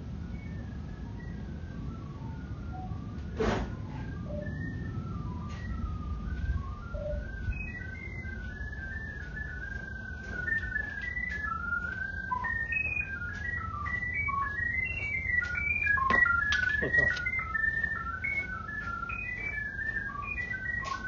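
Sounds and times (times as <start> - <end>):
low steady rumble: 0.0 - 16.5.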